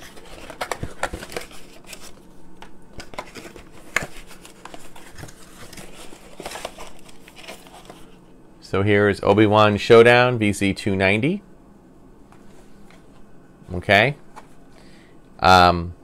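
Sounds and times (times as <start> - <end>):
packaging rustling and crinkling: 0.0 - 8.2.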